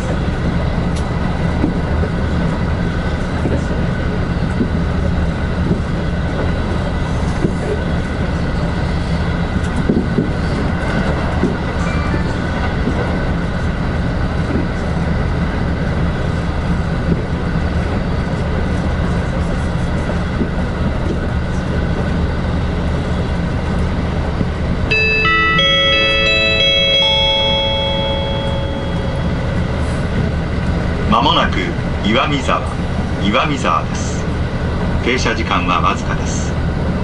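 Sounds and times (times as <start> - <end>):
train wheels rumbling on rails: 0.0 - 37.0
faint constant whine: 24.9 - 32.4.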